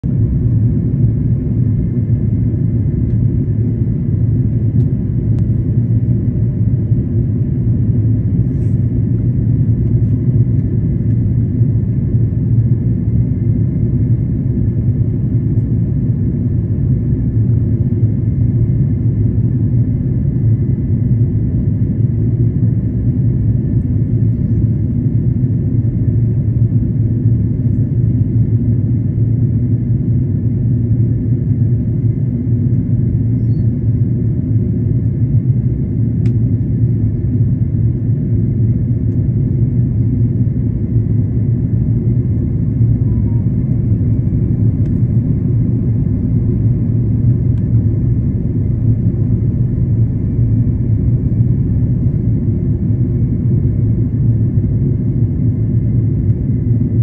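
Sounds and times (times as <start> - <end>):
airliner engine and air rumble: 0.0 - 57.0
faint thin whine: 41.8 - 52.9.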